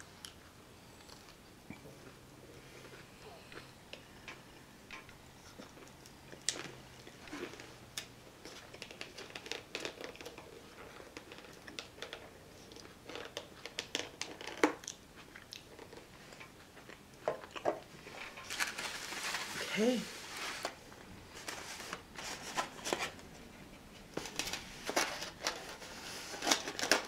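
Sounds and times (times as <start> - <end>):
quiet chewing: 0.0 - 18.6
plastic cup clicks and crinkles: 4.2 - 15.0.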